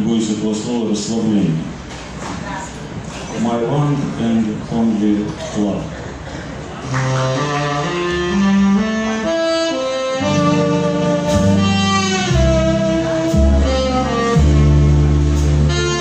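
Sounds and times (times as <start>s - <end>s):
double bass notes: 6.9s - 16.0s
saxophone slow melody: 7.0s - 16.0s.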